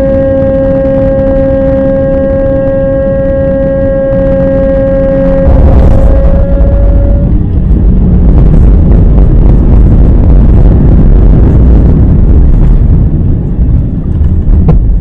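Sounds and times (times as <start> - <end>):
airplane cabin engine rumble: 0.0 - 15.0.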